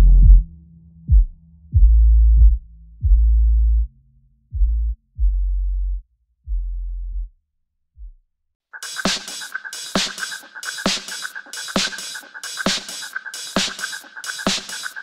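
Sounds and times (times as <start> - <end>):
electronic music deep bass notes: 0.0 - 7.3.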